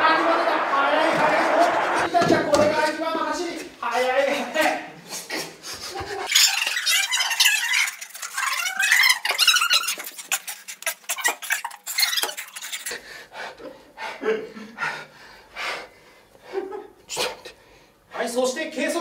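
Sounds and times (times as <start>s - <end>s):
high-pitched squeaking and rubbing: 6.2s - 13.0s.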